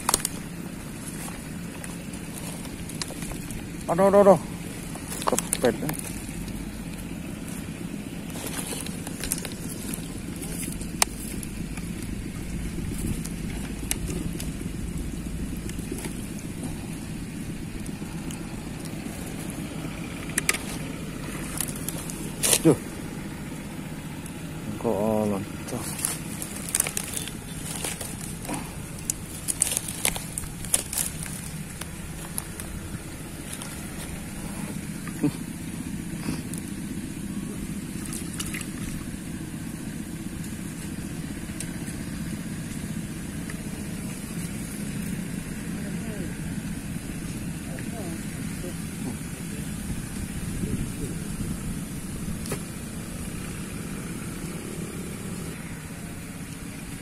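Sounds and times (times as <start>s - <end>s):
dry twigs crackling: 0.0s - 57.0s
steady low hum: 0.0s - 57.0s
wind buffeting microphone: 49.8s - 53.4s.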